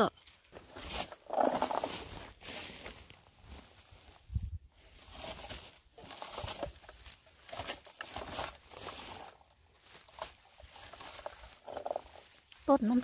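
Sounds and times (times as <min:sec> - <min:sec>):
leaves and twigs rustling: 0:00.0 - 0:13.0.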